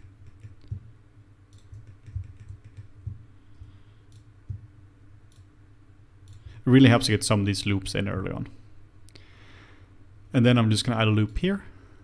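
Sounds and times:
mouse and keyboard clicks: 0.0 - 0.8, 1.5 - 2.9
low steady hum: 0.0 - 12.0.

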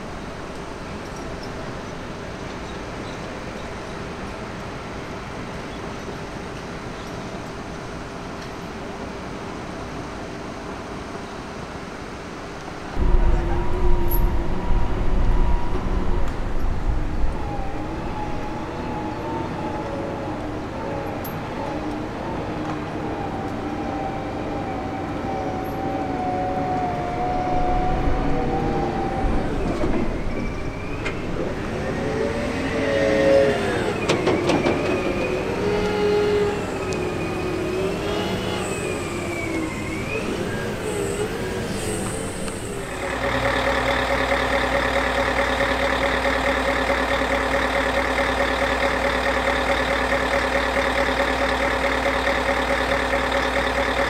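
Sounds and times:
steady hum: 12.9 - 18.2
diesel engine revving: 27.0 - 54.0.

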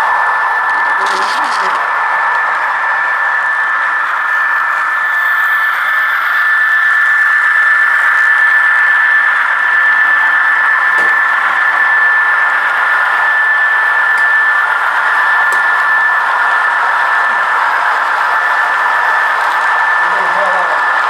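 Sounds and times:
model train motor whine: 0.0 - 21.0.

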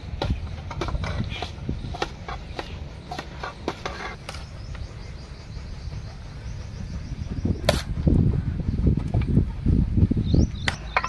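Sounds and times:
low outdoor rumble: 0.0 - 11.0
metal spoon scraping steel trays: 0.7 - 4.2.

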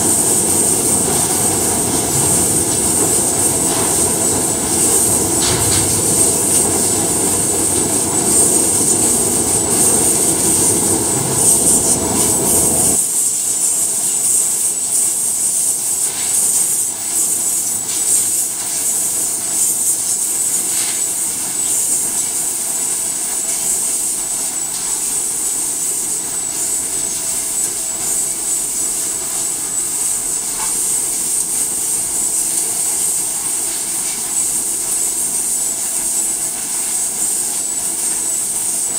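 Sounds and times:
machinery low rumble: 0.0 - 13.0
machinery high hiss: 0.0 - 38.9.

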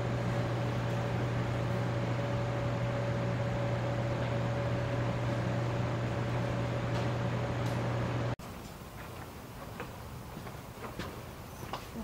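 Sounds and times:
thin steady whine: 0.0 - 10.6
machine hum and hiss: 0.0 - 12.0.

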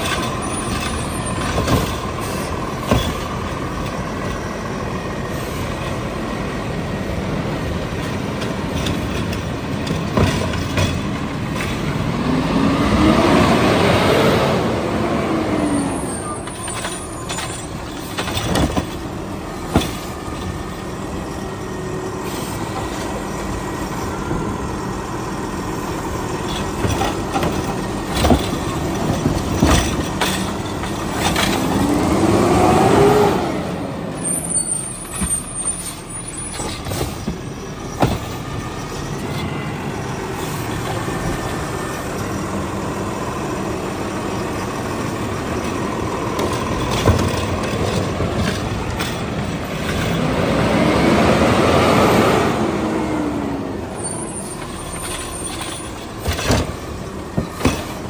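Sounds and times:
metal clanks and bangs: 0.0 - 4.4, 7.9 - 12.1, 16.4 - 21.0, 26.0 - 32.2, 34.8 - 39.5, 45.2 - 50.4, 54.6 - 58.0
truck engine revving: 0.0 - 58.0.

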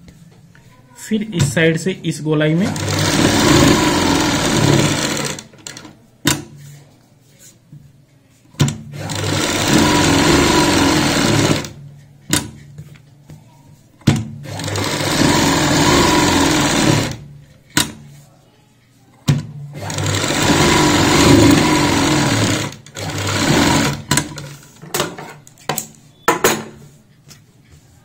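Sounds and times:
sewing machine running: 2.6 - 5.9, 8.9 - 11.8, 14.4 - 17.3, 19.8 - 24.6.

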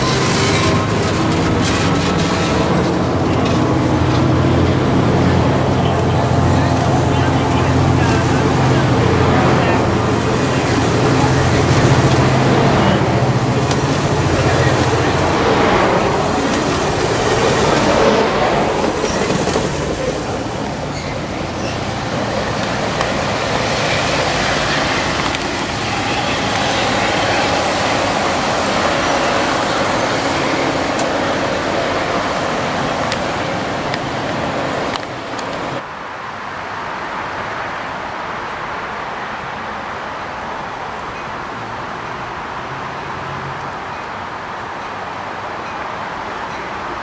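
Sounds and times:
train rolling past on rails: 0.0 - 35.9.

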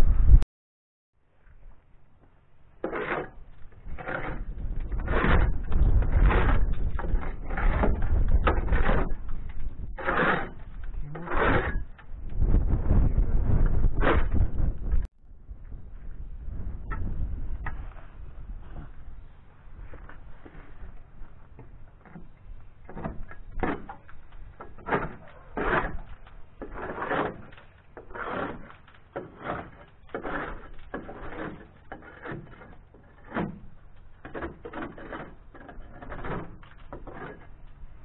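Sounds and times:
hand scraper rasping on hull: 2.8 - 12.0, 22.9 - 37.6.

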